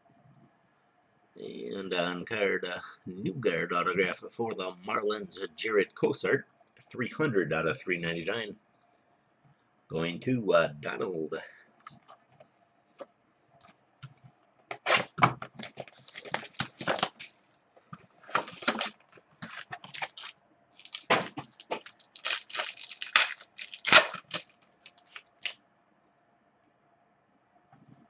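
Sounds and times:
plastic wrapper tearing and crinkling: 14.8 - 17.4, 18.3 - 25.6.

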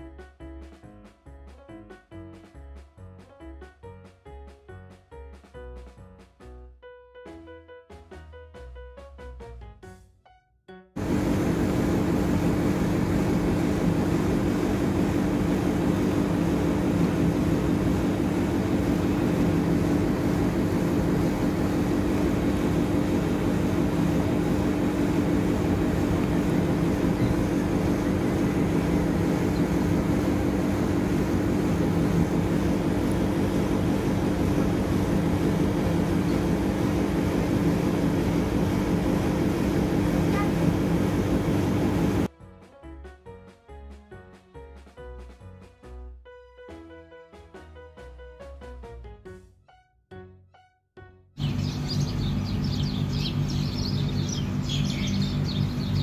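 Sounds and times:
steady mechanical hum: 11.0 - 42.3, 51.4 - 56.0.

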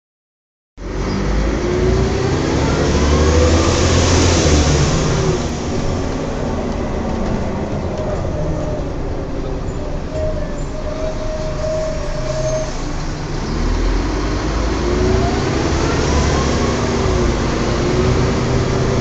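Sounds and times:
bus running: 0.8 - 19.0.

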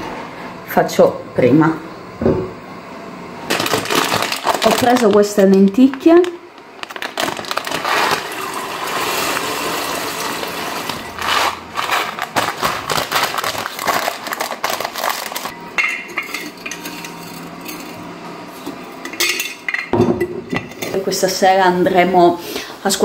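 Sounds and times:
lentils rattling into metal pot: 3.5 - 15.5.

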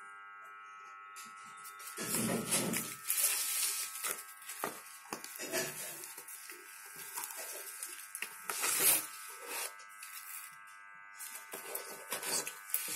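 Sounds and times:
steady electrical buzz: 0.0 - 12.9
paper rustling and tapping: 2.0 - 9.0.

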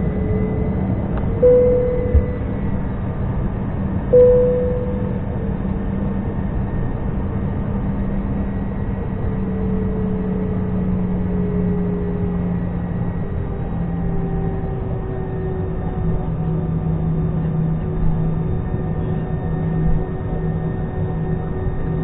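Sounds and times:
airplane cabin engine hum: 0.0 - 22.0
short ringing tone: 1.4 - 3.0, 4.1 - 5.5.

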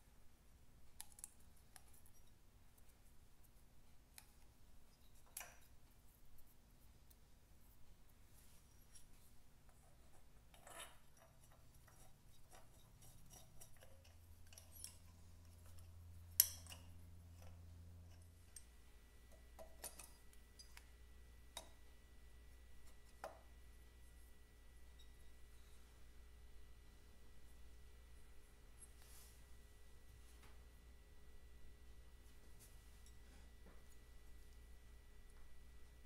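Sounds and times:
spanner clinking on metal parts: 10.4 - 18.7, 19.4 - 20.8.

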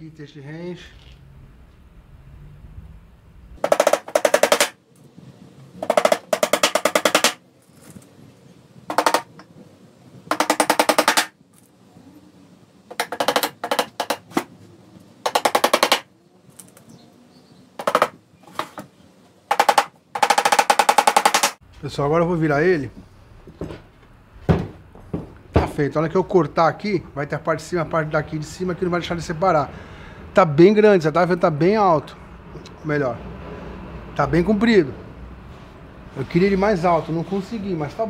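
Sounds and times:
hammer tapping nails into board: 3.6 - 4.8, 5.8 - 7.4, 8.9 - 9.5, 10.3 - 11.4, 12.9 - 14.5, 15.2 - 16.1, 17.8 - 18.8, 19.5 - 21.6.

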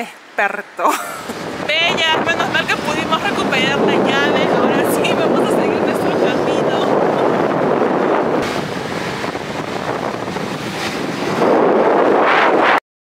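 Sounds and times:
wind buffeting microphone: 1.1 - 12.8.

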